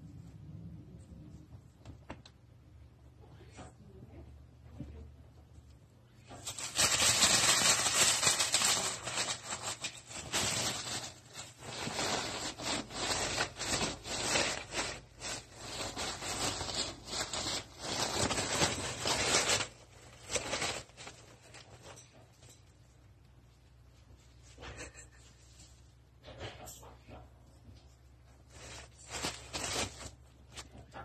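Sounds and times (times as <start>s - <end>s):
tissue paper crinkling: 6.3s - 22.0s, 28.4s - 30.8s.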